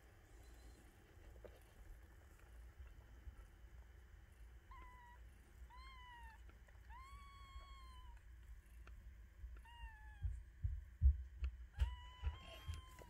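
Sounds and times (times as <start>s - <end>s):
kittens mewing: 4.7s - 8.4s, 9.5s - 10.4s, 11.8s - 13.0s.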